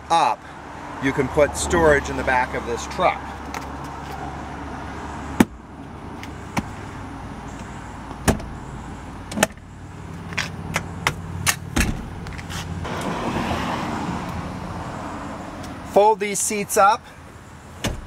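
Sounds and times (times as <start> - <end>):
seat panels clunking into place: 10.8 - 12.2.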